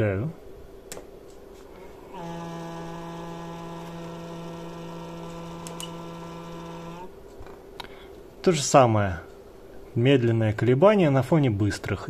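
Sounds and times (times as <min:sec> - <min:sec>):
stepper motor humming: 0:02.0 - 0:07.1.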